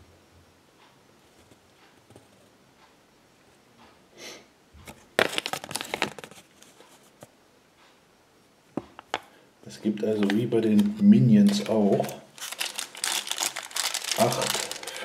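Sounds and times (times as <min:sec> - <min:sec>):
paper rustling and crackling: 0:04.9 - 0:07.2, 0:10.0 - 0:15.0.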